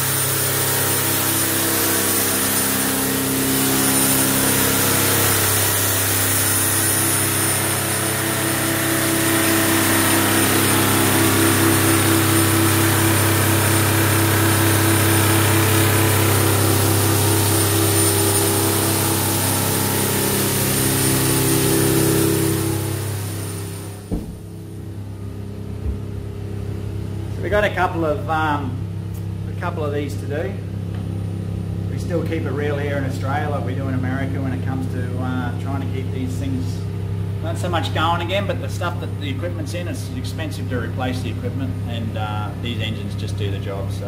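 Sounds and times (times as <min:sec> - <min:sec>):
diesel engine running steadily: 0:00.0 - 0:33.8.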